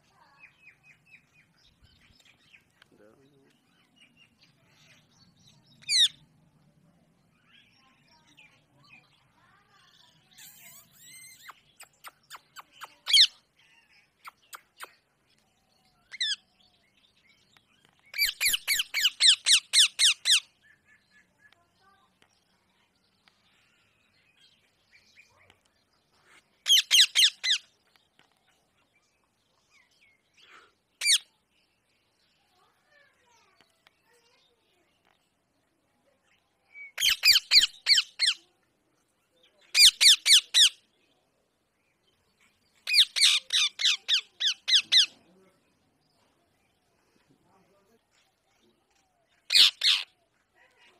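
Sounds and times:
parakeet screeching: 26.6 - 27.6, 37.0 - 38.4, 42.9 - 45.1, 49.5 - 50.0
parakeet shrill screeches: 26.6 - 27.6, 49.5 - 50.1.

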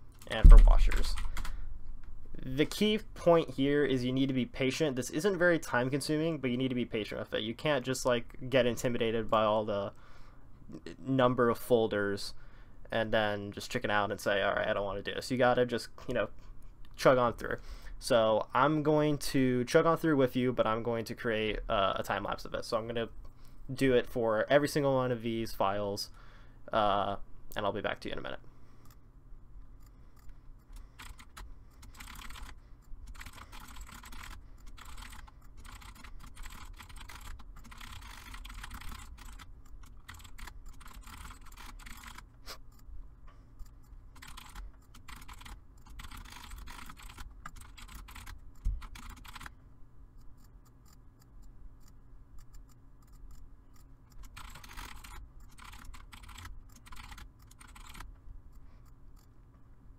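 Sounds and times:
low steady hum: 0.0 - 59.9
thump: 0.4 - 0.9
keyboard typing: 30.7 - 42.2, 44.1 - 49.5, 54.1 - 58.1.

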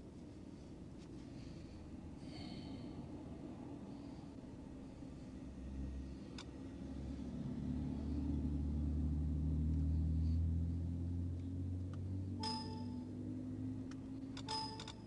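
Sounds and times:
low engine hum: 2.6 - 14.5
car driving past: 5.5 - 12.4, 13.0 - 14.2
short electronic beep: 12.4 - 13.1.

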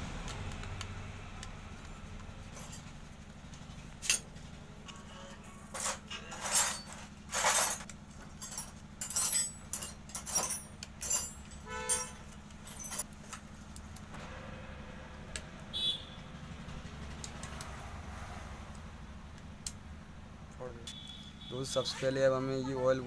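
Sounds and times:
steady low hum: 0.0 - 21.5
metal tools and bolts clinking: 2.4 - 3.0, 4.0 - 4.3, 4.9 - 13.5.

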